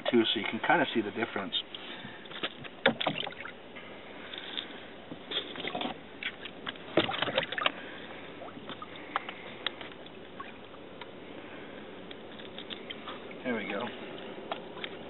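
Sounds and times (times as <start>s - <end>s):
water splashing in a tank: 2.8s - 3.6s, 5.6s - 9.2s.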